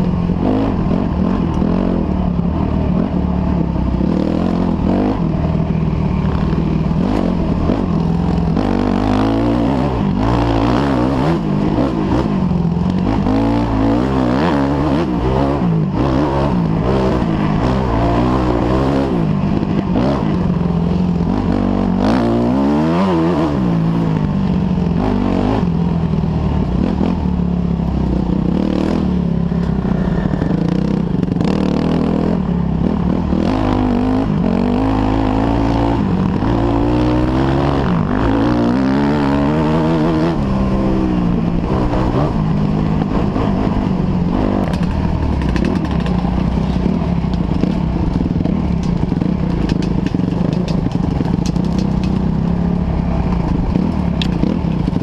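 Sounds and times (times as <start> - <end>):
dirt bike engine revving: 0.0 - 55.0
chassis rattle and scraping: 44.6 - 55.0.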